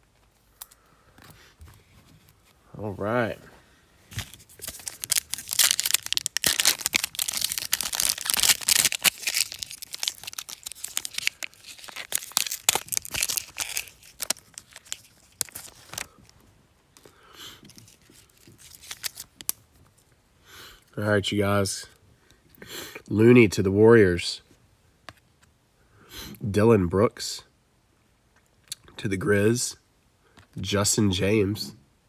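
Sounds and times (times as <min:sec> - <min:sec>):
foil wrapper tearing and crinkling: 0:04.1 - 0:16.2, 0:17.7 - 0:19.6.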